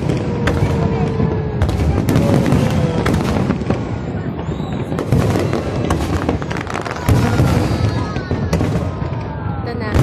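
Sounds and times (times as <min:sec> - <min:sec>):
firework shells bursting: 0:04.5 - 0:09.3.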